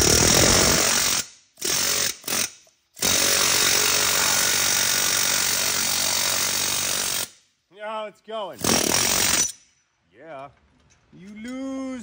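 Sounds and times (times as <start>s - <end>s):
pneumatic air hammer hammering: 0.0s - 7.3s.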